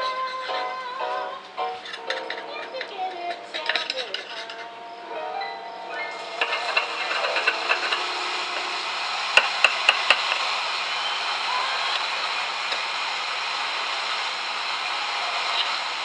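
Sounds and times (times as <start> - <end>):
steady hiss: 0.0 - 16.0
metal utensil tapping: 1.9 - 4.7, 6.1 - 8.7, 9.4 - 10.4.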